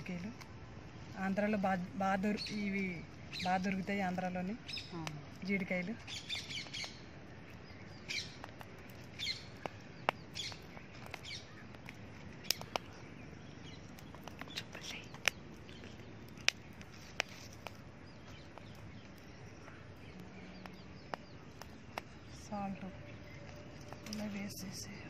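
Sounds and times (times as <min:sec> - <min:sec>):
birds chirping: 0:00.0 - 0:25.0
sharp clicks: 0:08.2 - 0:13.0, 0:13.9 - 0:19.3.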